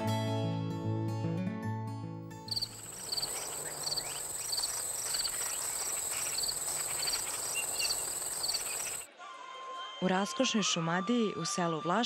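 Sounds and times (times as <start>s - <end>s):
crickets chirping: 2.5s - 9.1s
high-pitched insect trill: 2.5s - 9.1s.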